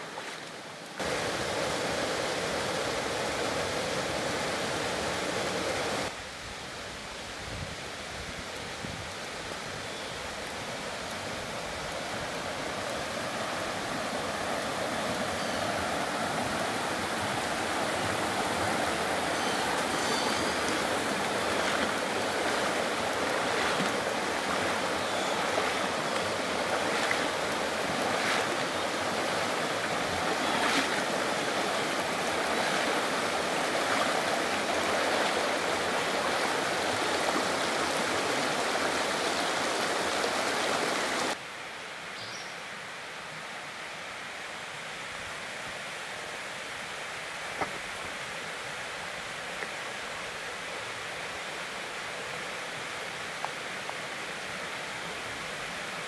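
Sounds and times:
creek rushing over rocks: 0.0 - 6.2, 8.1 - 41.4.

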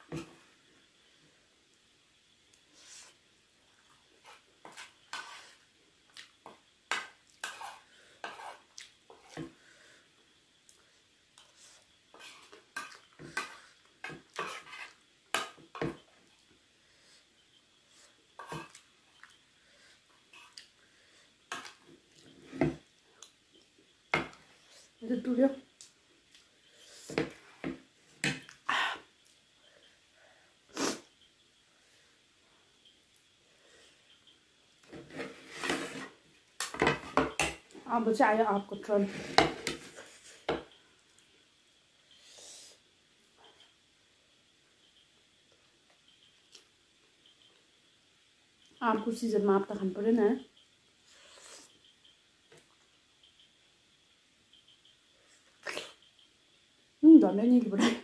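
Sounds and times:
person blowing nose: 30.7 - 31.0
person sniffing and snorting: 30.7 - 31.1, 55.6 - 56.0.

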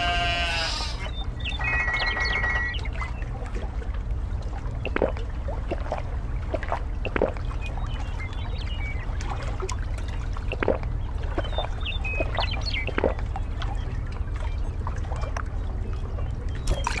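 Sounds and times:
sheep bleat: 0.0 - 1.1
short high buzzing call: 0.0 - 2.7
animal lapping water: 3.2 - 8.2, 9.1 - 15.7.

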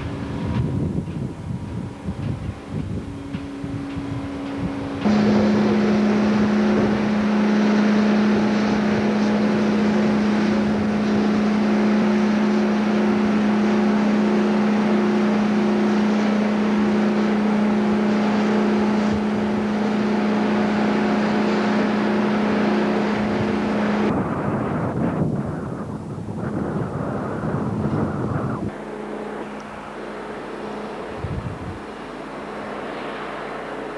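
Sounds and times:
diesel engine running: 0.0 - 33.9
rushing noise: 4.6 - 33.9.

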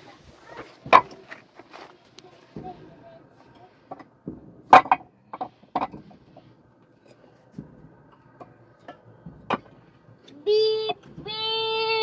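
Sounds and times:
hard objects knocking and clattering: 0.7 - 1.8, 3.6 - 10.3.

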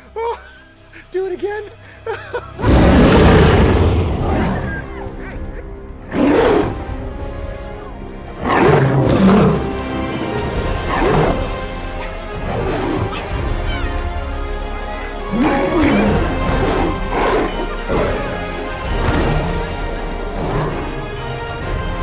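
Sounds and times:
orchestral film score: 0.0 - 22.0
lions and hyenas roaring: 2.6 - 5.4, 6.1 - 6.9, 8.4 - 14.3, 15.0 - 21.0.

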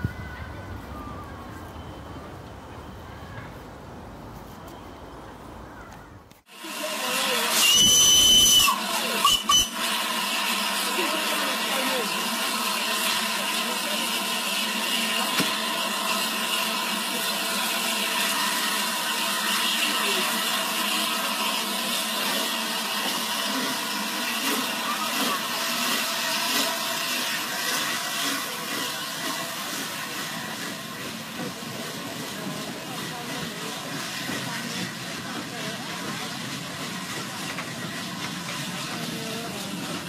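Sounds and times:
steam hissing: 6.5 - 40.0.

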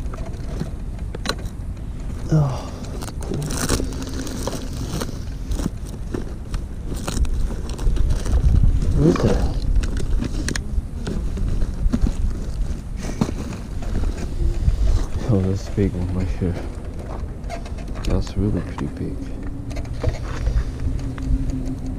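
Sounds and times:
low rumble: 1.6 - 21.9
gear rustling in nylon bag: 2.1 - 17.5.

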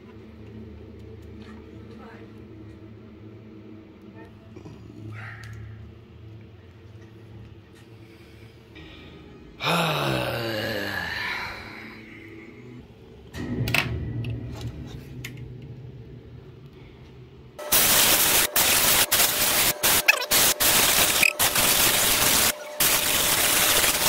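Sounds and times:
compressed air hissing bursts: 17.6 - 24.0.

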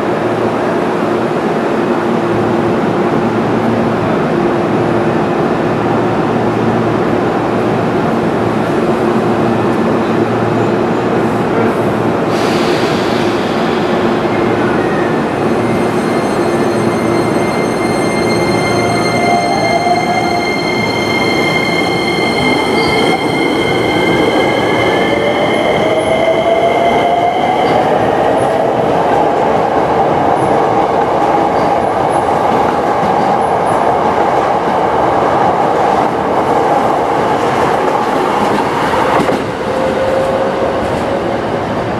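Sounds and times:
steady high tone: 13.2 - 27.6.

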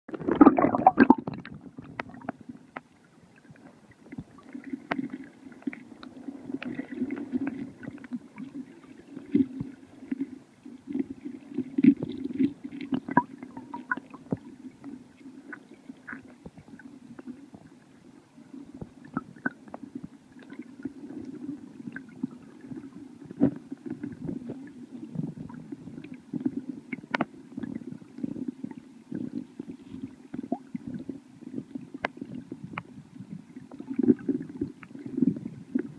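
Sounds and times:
muffled underwater river rumble: 0.1 - 35.9.

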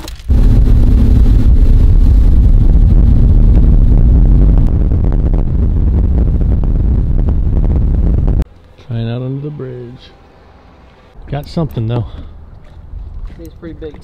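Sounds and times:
outboard motor rumbling: 0.3 - 8.4
wind buffeting microphone: 0.3 - 8.5.

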